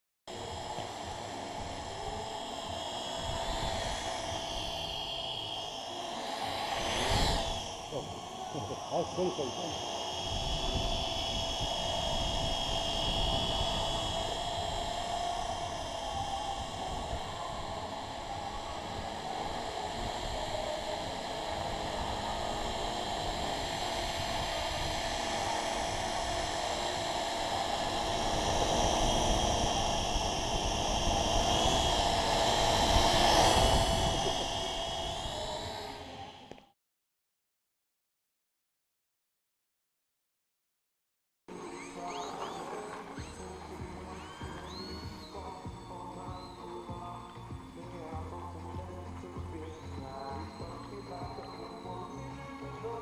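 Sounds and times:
quadcopter propellers buzzing: 0.3 - 36.7, 41.5 - 53.0.

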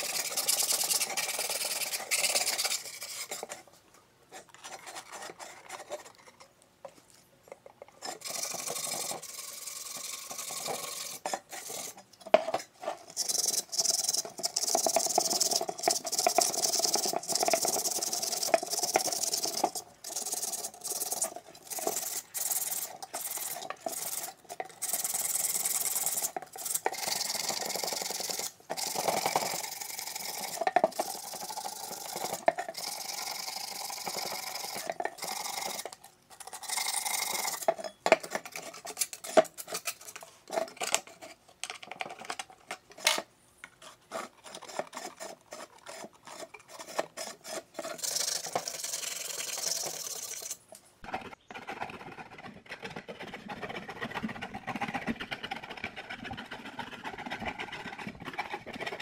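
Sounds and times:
sandpaper scratching on metal: 0.0 - 3.4, 8.2 - 12.0.

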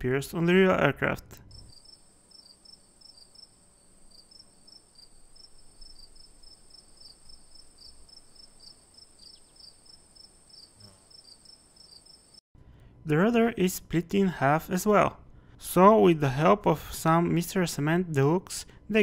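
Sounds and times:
insect-like chirping: 1.5 - 12.4.

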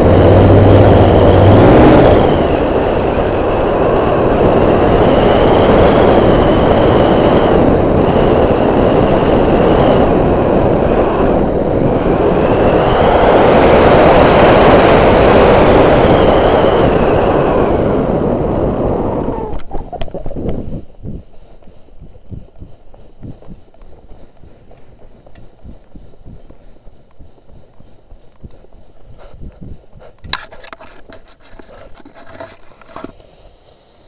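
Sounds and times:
paramotor engine whining: 0.0 - 20.9
wind rush: 0.0 - 34.0.

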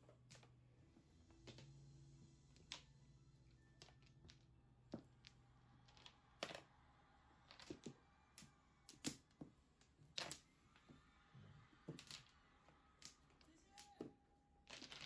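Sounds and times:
mahjong tiles clicking and clacking: 3.6 - 6.8, 7.5 - 9.4, 14.7 - 15.0.

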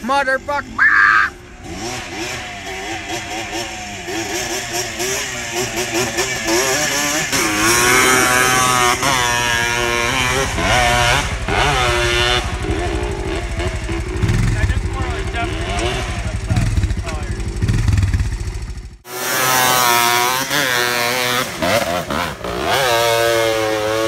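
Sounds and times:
quad bike engine revving: 0.0 - 24.0.

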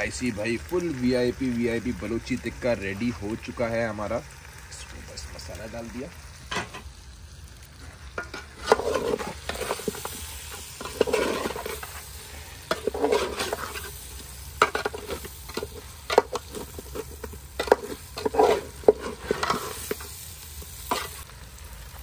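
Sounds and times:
light sizzle: 0.0 - 22.0
metal utensil scraping a pot: 8.0 - 20.2, 20.8 - 21.2.

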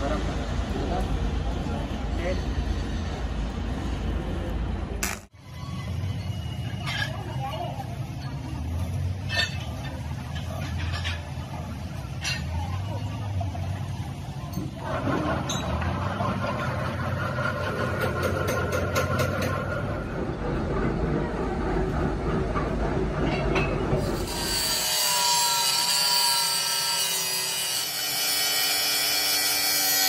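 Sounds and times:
angle grinder cutting steel: 24.0 - 30.0.

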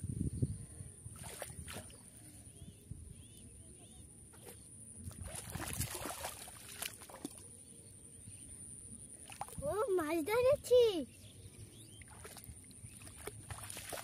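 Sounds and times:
splashing in muddy water: 1.1 - 2.2, 4.3 - 7.6, 9.2 - 9.8, 12.0 - 14.0.

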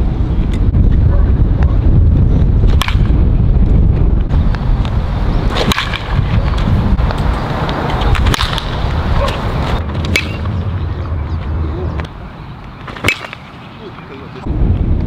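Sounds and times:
wind on microphone: 0.0 - 12.5, 14.4 - 15.0
baseball bat hitting ball: 2.7 - 3.2, 5.5 - 6.3, 8.0 - 10.6, 12.9 - 13.5.

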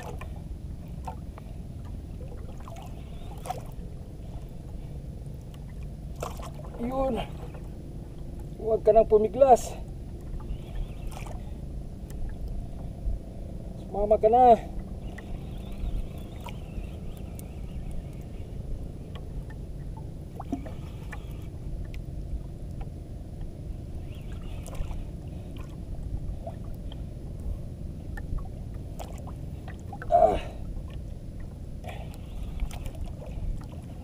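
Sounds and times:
water slapping against boat: 0.0 - 12.9, 14.7 - 34.0
fishing reel ticking: 10.5 - 12.3, 15.0 - 19.2, 20.4 - 21.6, 23.9 - 25.2, 31.8 - 34.0.

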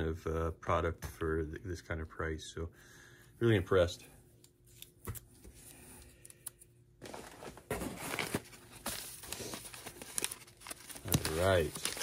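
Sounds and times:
paper and bubble wrap crinkling: 7.0 - 12.0.

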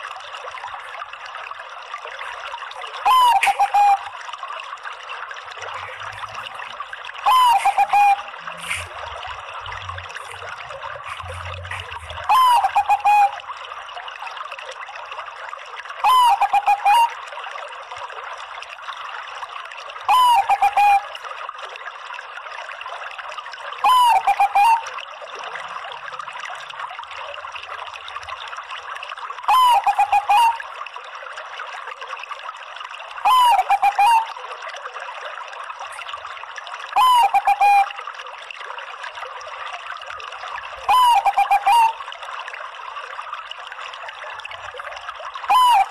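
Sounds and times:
dove cooing: 3.1 - 4.0, 7.3 - 8.9, 11.0 - 13.3, 20.1 - 21.0, 23.8 - 24.8, 29.5 - 30.6, 33.3 - 34.3, 40.9 - 41.9.

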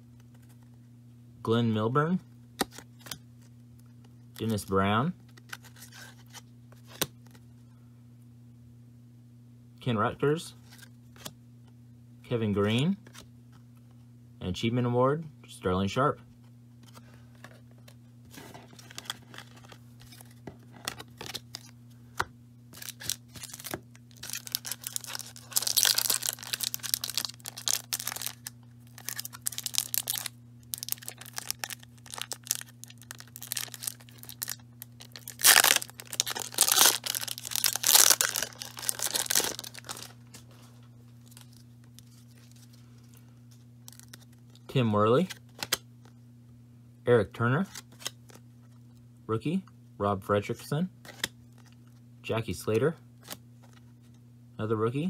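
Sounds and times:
foil wrapper tearing: 22.7 - 40.2, 43.8 - 44.4.

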